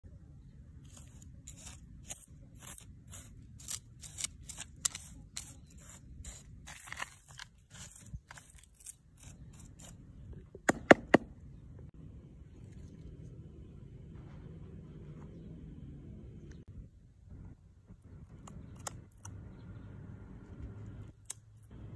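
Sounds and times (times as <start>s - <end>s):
metal tool scraping soil: 0.8s - 10.2s.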